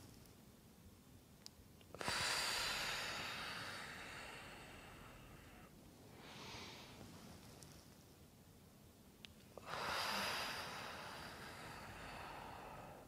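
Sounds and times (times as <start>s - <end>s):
person exhaling: 2.0s - 7.0s, 9.6s - 13.0s
person inhaling softly: 2.0s - 7.4s, 9.6s - 13.0s.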